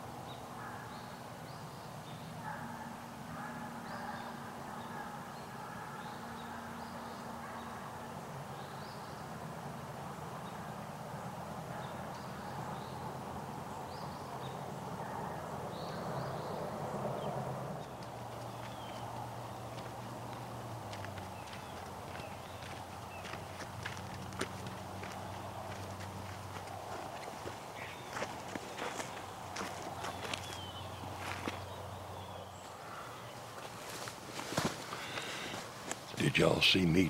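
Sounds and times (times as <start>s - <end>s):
distant animal calls: 2.4s - 9.2s, 13.8s - 36.2s.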